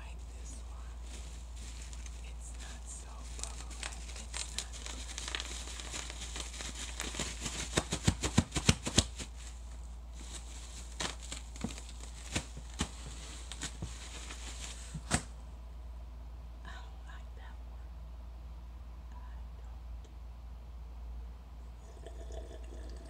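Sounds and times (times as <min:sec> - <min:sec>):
bubble wrap crinkling: 0:00.0 - 0:15.4
bubble wrap pops: 0:03.3 - 0:09.4, 0:10.3 - 0:15.4.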